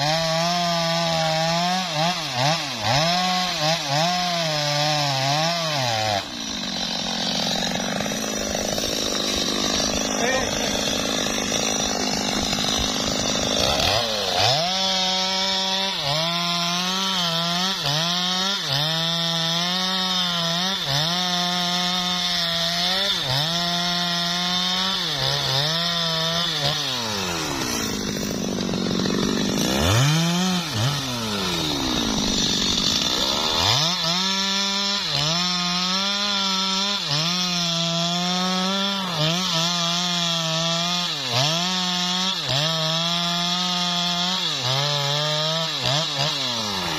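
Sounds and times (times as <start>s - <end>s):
chainsaw cutting log: 0.0s - 46.9s.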